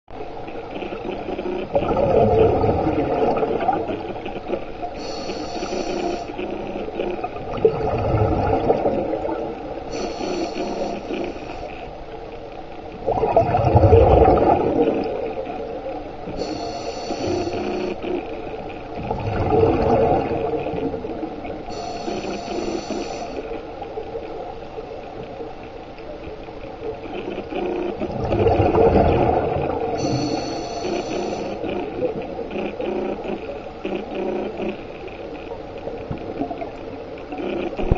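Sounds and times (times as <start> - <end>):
exhaled air bubbling: 0.7 - 11.9, 12.9 - 25.2, 26.8 - 37.9
regulator inhalation hiss: 5.0 - 6.4, 9.9 - 11.8, 16.4 - 18.0, 21.7 - 23.5, 30.0 - 31.7.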